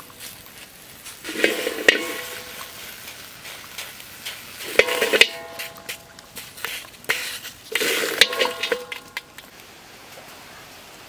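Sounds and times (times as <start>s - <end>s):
wok ringing: 1.3s - 2.7s, 4.6s - 6.2s, 7.1s - 9.3s
eggs knocking on metal wok: 4.7s - 6.1s, 8.0s - 9.4s.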